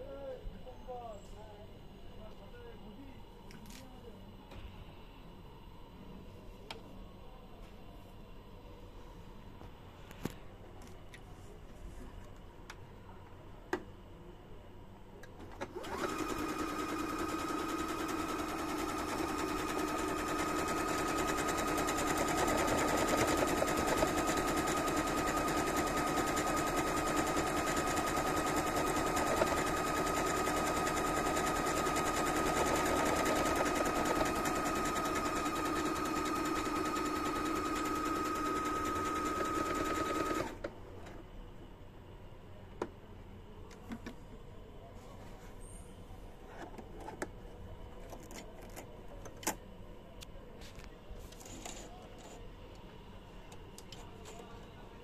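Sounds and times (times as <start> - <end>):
sewing machine stitching: 15.4 - 40.6.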